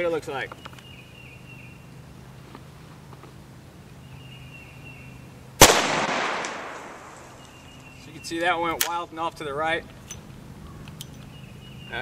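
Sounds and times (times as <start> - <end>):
gunshot with echo: 5.6 - 7.2.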